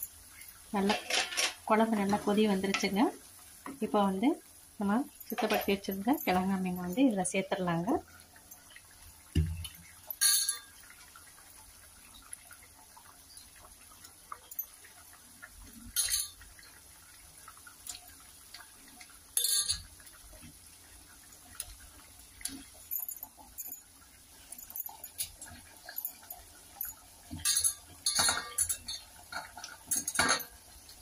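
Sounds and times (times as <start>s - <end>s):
utensil clinking against pot: 5.3s - 6.4s, 10.2s - 10.7s, 15.9s - 16.4s, 19.4s - 19.9s, 24.5s - 30.6s.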